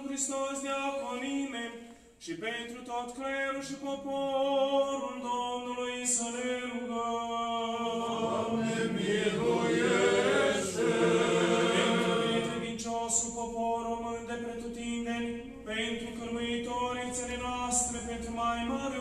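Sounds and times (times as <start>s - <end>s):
voices chanting a cappella: 4.7s - 19.0s.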